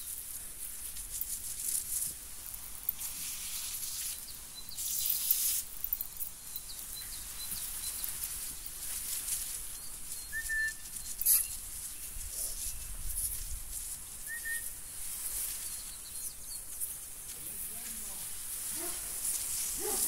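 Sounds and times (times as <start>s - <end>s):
water hissing from hose nozzle: 1.6s - 6.0s
faint bird chirps: 6.4s - 8.8s, 9.6s - 13.1s, 14.2s - 18.1s.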